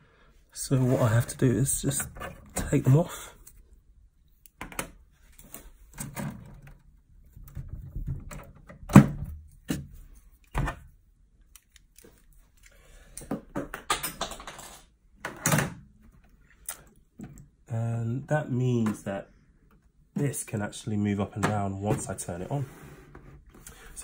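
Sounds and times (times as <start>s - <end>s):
clattering and rustling: 5.3s - 10.9s.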